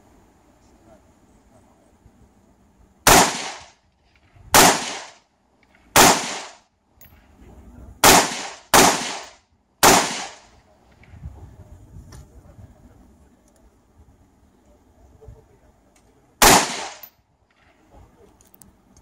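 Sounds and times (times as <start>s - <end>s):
rifle shots: 3.0s - 3.8s, 4.5s - 5.2s, 5.9s - 6.6s, 8.0s - 10.5s, 16.4s - 17.1s.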